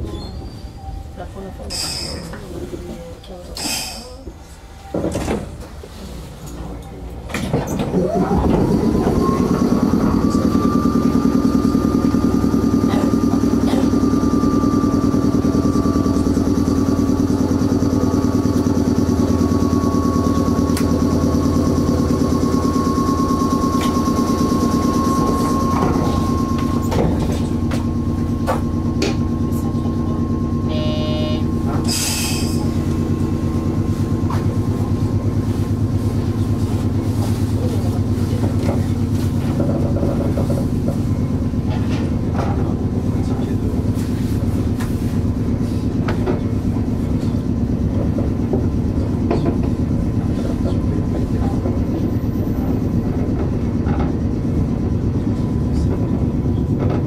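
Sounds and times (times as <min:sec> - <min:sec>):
train machinery whine: 0:00.0 - 0:57.0
short electronic tone: 0:30.6 - 0:32.6.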